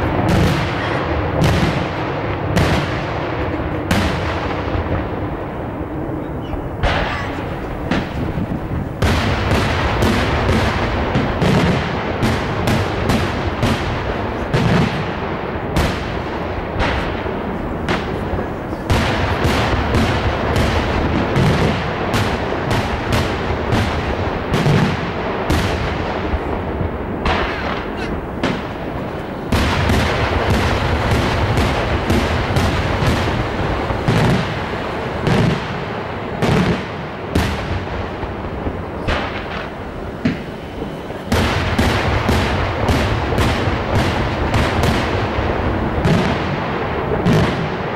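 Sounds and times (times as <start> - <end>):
fireworks bangs: 0.0 - 47.9.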